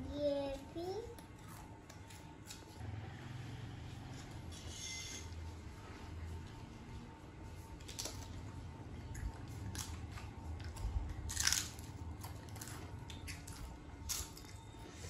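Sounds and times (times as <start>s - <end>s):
children crunching potato chips: 7.8s - 8.5s, 9.1s - 14.6s.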